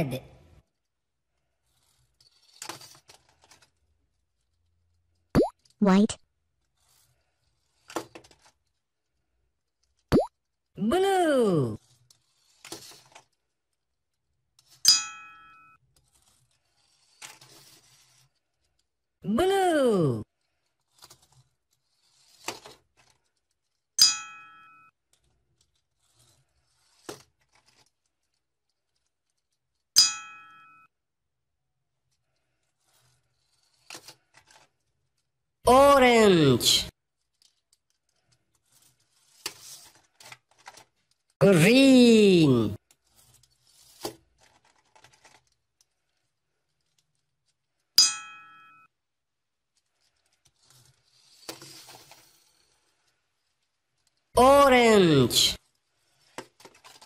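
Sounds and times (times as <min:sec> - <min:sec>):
toy cars clattering in plastic bowl: 0:37.2 - 0:41.4, 0:42.9 - 0:47.7, 0:49.8 - 0:54.3, 0:55.6 - 0:57.0.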